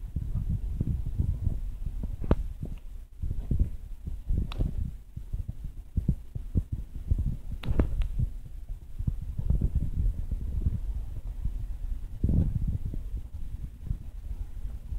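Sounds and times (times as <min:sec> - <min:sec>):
camera handling rumble: 0:02.0 - 0:05.0, 0:07.5 - 0:08.3
sharp clicks: 0:04.4 - 0:04.8, 0:07.6 - 0:08.2.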